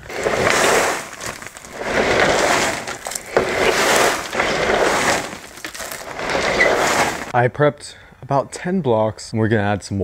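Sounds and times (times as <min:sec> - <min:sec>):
substrate rushing into plastic bag: 0:00.0 - 0:07.3.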